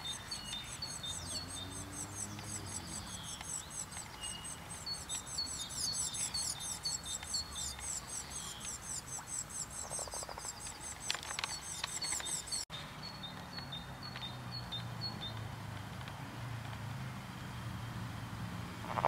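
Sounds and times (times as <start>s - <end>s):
small animals chirping: 0.0s - 12.6s.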